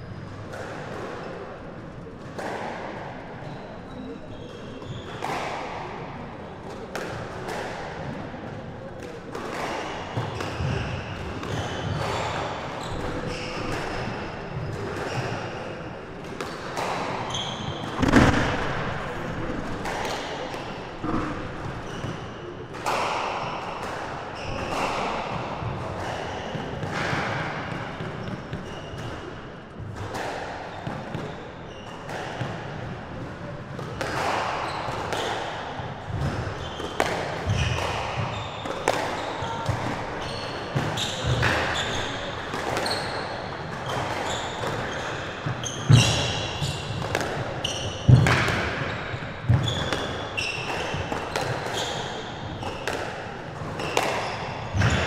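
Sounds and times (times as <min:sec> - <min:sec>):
squash ball hitting rackets and walls: 0:00.3 - 0:55.0
shoe squeaks on wooden floor: 0:17.3 - 0:19.3, 0:40.2 - 0:43.3, 0:44.2 - 0:47.0, 0:48.9 - 0:50.9.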